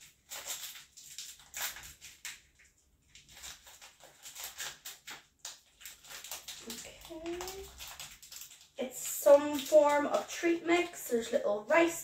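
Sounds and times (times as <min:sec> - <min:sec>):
packet crinkling and rustling: 0:00.0 - 0:12.0.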